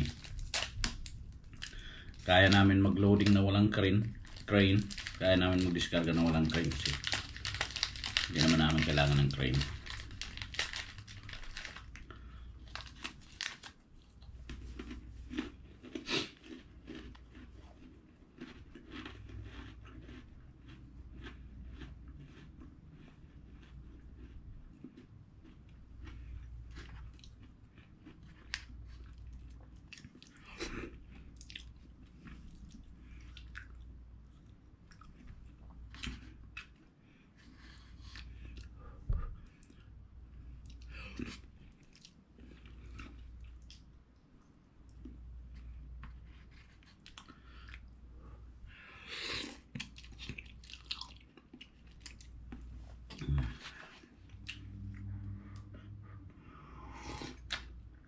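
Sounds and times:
wet chewing and mouth smacks: 0:31.2 - 0:36.9, 0:40.6 - 0:48.0, 0:49.4 - 0:55.9, 0:57.2 - 0:57.9.

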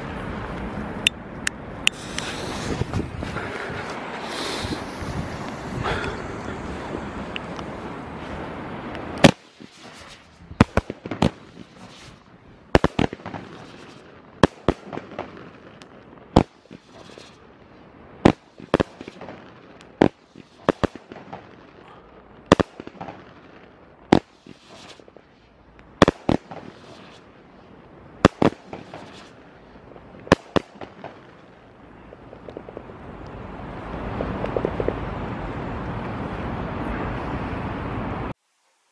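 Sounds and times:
firework cake bangs: 0:28.2 - 0:29.3.

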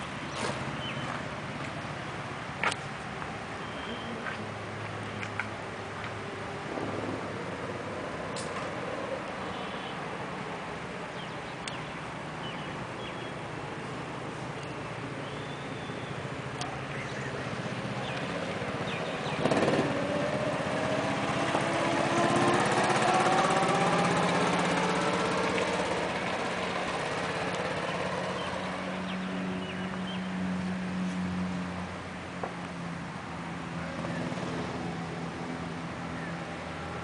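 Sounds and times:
go-kart engines running: 0:12.2 - 0:37.0
go-kart accelerating past: 0:17.1 - 0:30.3, 0:33.6 - 0:37.0.

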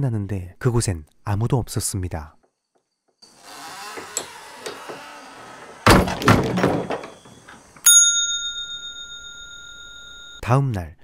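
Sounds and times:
wooden door shutting: 0:03.4 - 0:07.8
hand bell ringing: 0:07.8 - 0:10.4.

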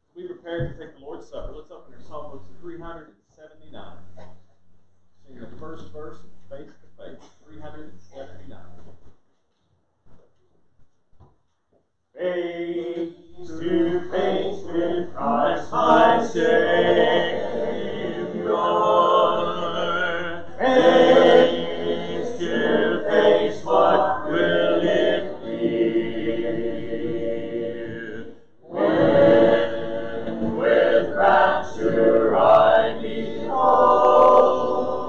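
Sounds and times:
congregation singing a hymn: 0:12.2 - 0:35.0.

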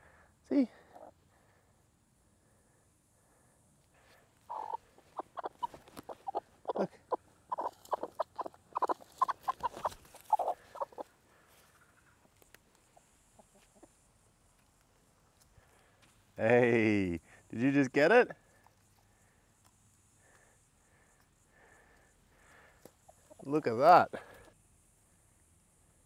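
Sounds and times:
hens clucking: 0:00.9 - 0:01.2, 0:04.4 - 0:14.1, 0:22.8 - 0:23.6.

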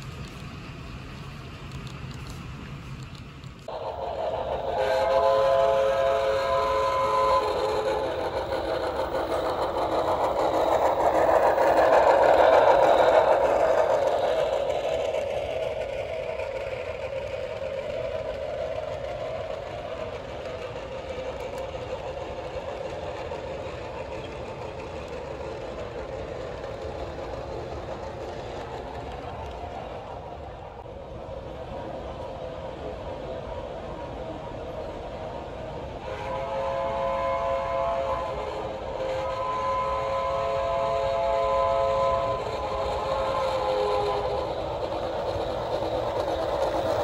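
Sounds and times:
model train rolling on track: 0:00.0 - 0:47.0
train horn chord: 0:03.7 - 0:08.0, 0:36.0 - 0:44.3.

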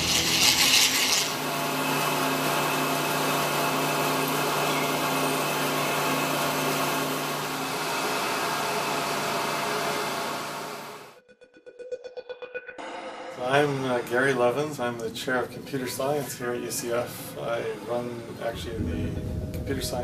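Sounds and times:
drilling machine cutting metal: 0:00.0 - 0:11.1.

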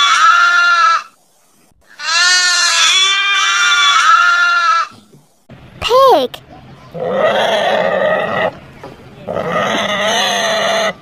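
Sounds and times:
goat bleating: 0:01.9 - 0:05.0.

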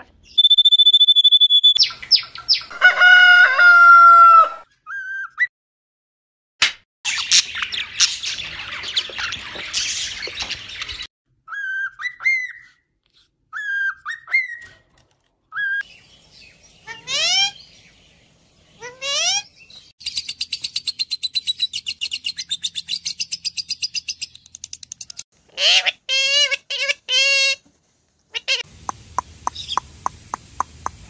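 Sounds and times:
canary singing trills: 0:00.2 - 0:02.7
short rising bird chirps: 0:00.3 - 0:02.7
budgies chattering: 0:07.1 - 0:11.1.

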